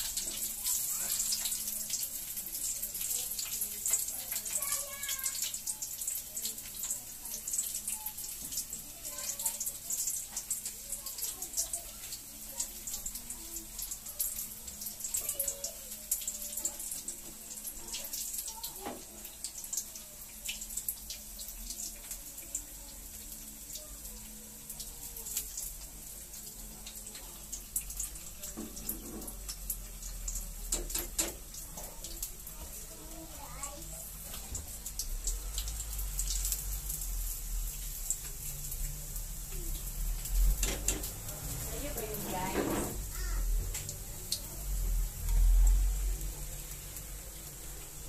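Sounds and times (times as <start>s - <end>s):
chicken deep-frying in oil: 0.0s - 48.0s.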